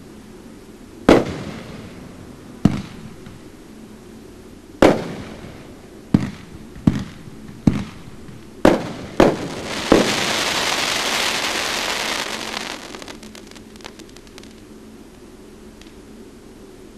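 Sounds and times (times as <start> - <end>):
firework bangs: 1.1 - 3.6, 4.8 - 14.6
firework crackling: 1.1 - 3.6, 4.8 - 14.7.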